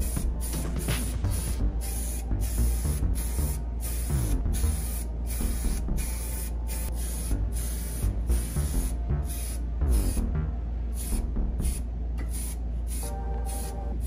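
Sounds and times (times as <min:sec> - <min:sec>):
aerosol can spraying: 0:00.0 - 0:10.2.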